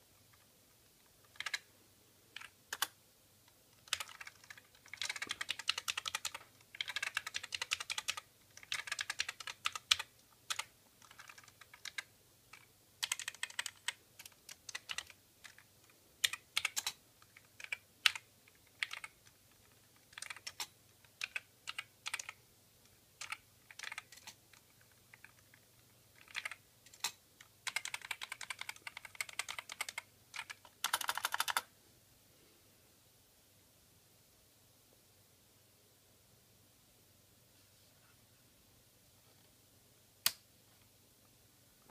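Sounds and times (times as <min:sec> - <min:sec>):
computer keyboard typing: 0:01.2 - 0:01.7, 0:02.4 - 0:03.0, 0:03.8 - 0:22.4, 0:23.2 - 0:31.7.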